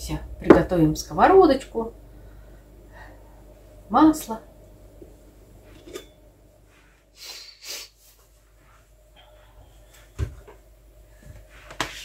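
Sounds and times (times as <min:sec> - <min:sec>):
person sniffing: 0:07.1 - 0:08.1.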